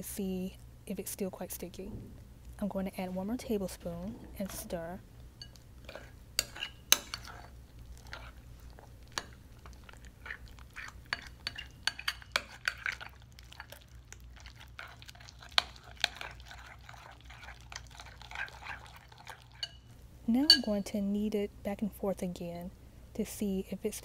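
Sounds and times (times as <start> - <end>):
spoon stirring slime in bowl: 4.4 - 21.0
spoon clinking against bowl: 5.4 - 7.4, 11.1 - 13.0, 19.3 - 21.0.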